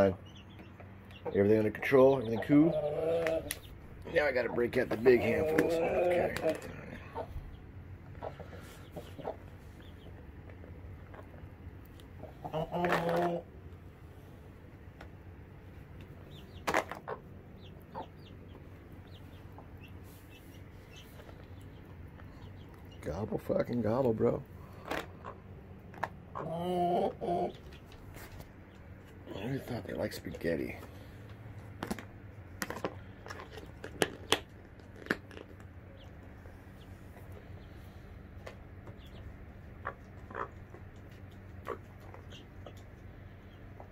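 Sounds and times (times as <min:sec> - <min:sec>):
chicks peeping: 0:00.0 - 0:13.6, 0:15.0 - 0:31.3, 0:35.6 - 0:43.9
chickens clucking: 0:00.0 - 0:13.7, 0:15.6 - 0:31.4, 0:35.8 - 0:43.9
beak pecking: 0:38.4 - 0:43.9.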